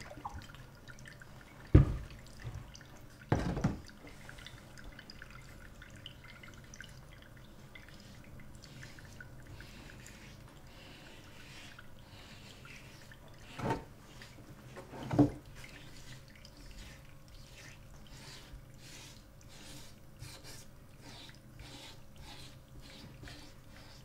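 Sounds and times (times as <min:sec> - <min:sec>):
hand rubbing ink on metal plate: 0:15.7 - 0:24.0.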